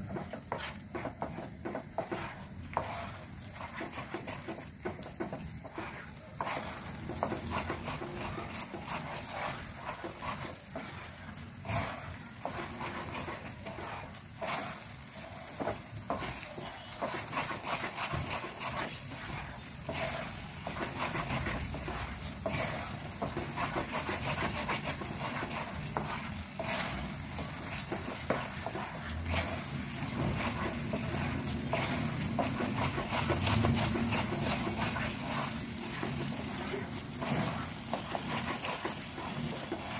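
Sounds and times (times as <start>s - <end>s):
spatula knocking on pan: 0.0s - 11.1s
wooden spatula scraping a pan: 0.0s - 39.9s.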